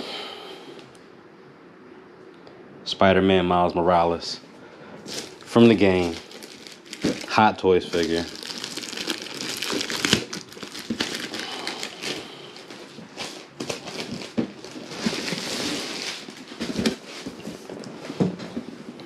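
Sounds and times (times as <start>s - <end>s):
plastic bag crinkling: 5.0s - 18.0s.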